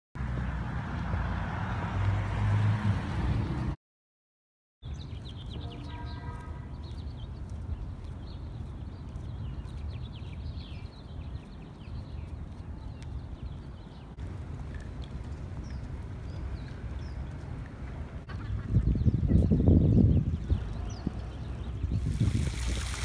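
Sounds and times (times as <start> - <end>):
birds chirping: 4.8 - 23.0.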